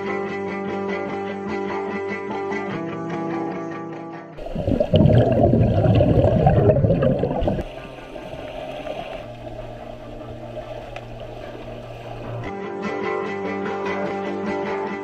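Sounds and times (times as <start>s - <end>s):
underwater water churning: 4.4s - 12.5s.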